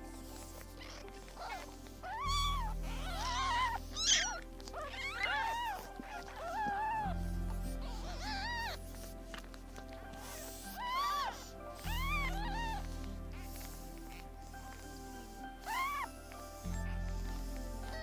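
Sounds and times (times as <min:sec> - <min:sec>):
kittens mewing: 0:00.7 - 0:09.1.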